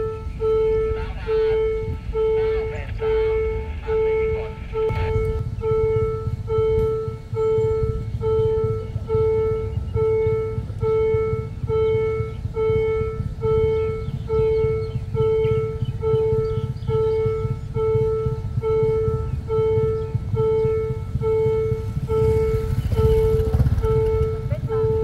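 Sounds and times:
level crossing warning bell: 0.0s - 25.0s
low rumble: 0.0s - 25.0s.

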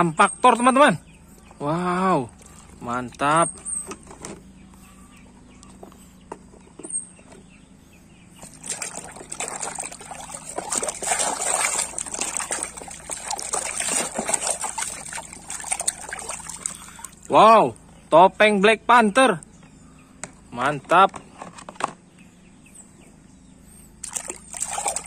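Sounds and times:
water splashing and sloshing: 1.3s - 4.3s, 8.4s - 17.4s, 24.0s - 25.0s
hand scrubbing in soapy water: 8.4s - 17.3s, 24.0s - 25.0s.

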